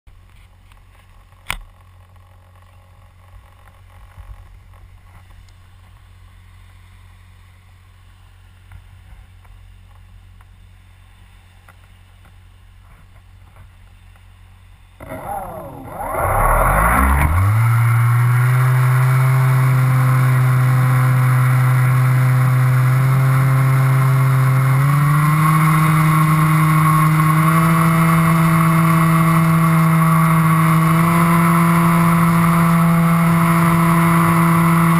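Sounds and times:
low wind rumble: 14.4 - 34.9
model aircraft propeller motor: 15.0 - 34.9.

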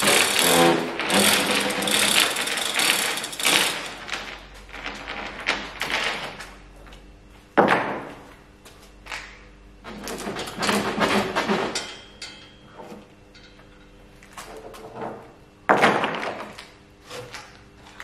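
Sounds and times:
chain hoist rattling and clicking: 0.0 - 5.0.

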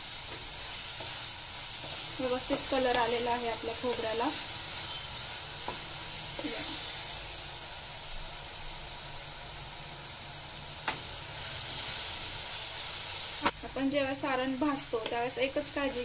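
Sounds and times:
filling sizzling in a hot pan: 0.0 - 16.0.

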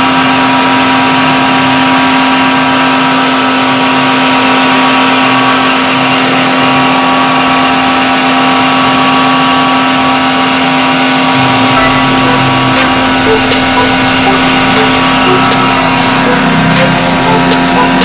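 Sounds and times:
pressure washer humming: 6.3 - 18.0.

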